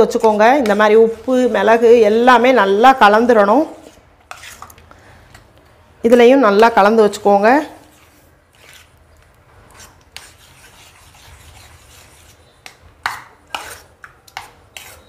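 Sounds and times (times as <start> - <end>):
spoon scraping bowl side: 0.0 - 2.0, 3.7 - 4.8, 7.8 - 9.0, 9.7 - 15.0
spoon stirring in metal bowl: 0.0 - 5.5, 6.6 - 15.0.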